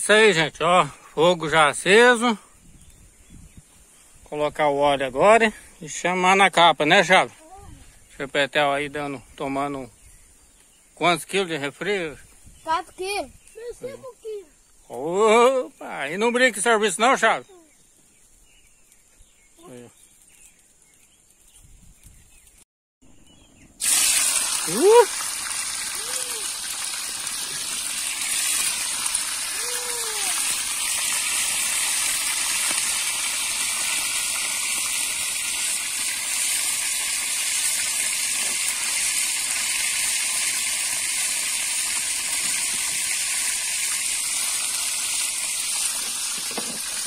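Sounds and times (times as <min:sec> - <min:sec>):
fish sizzling in hot oil: 0:23.7 - 0:47.0.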